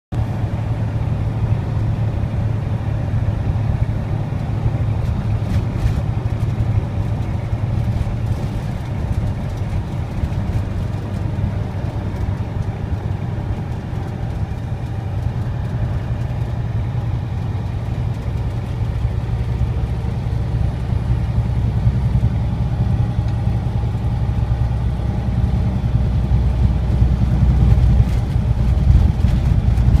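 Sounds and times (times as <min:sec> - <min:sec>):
road noise: 0:00.1 - 0:30.0
truck diesel engine droning: 0:00.1 - 0:30.0.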